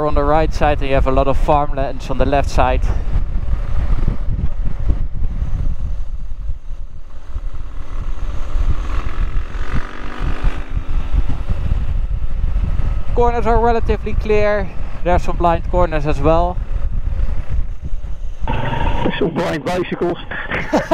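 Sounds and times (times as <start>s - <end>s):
low rumble on microphone: 0.0s - 19.5s
motorcycle engine running: 3.1s - 13.2s.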